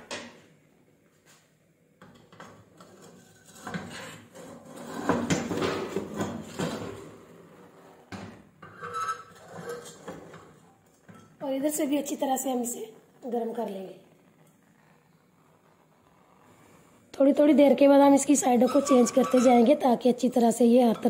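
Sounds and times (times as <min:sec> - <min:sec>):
clay pot scraping on metal grate: 0:08.6 - 0:10.7, 0:18.5 - 0:19.8.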